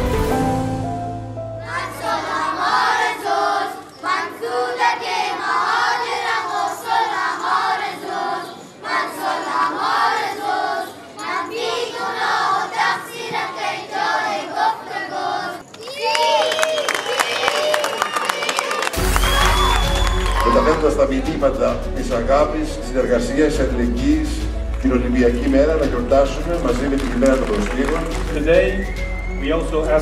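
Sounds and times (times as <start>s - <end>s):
background music: 0.0s - 3.9s, 18.9s - 30.0s
children singing together: 1.6s - 15.6s.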